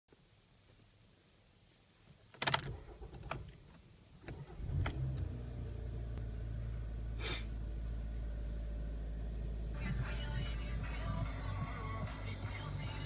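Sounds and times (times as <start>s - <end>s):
rustle: 0.1s - 2.4s
car keys clicking and jangling: 2.3s - 5.3s
car engine starting and idling: 2.4s - 13.0s.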